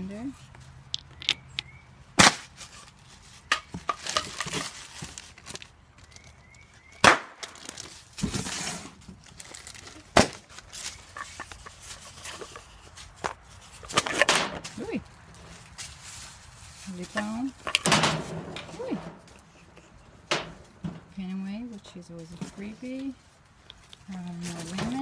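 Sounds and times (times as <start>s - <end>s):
paper and cardboard rustling: 2.4s - 6.4s, 7.4s - 20.8s, 22.1s - 25.0s.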